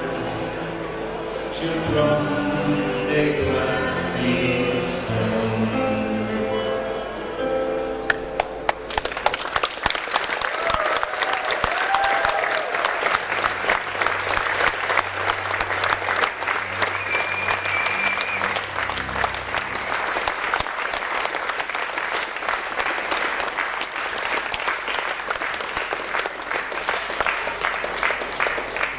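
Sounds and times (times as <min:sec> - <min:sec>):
audience applauding: 0:08.4 - 0:28.9.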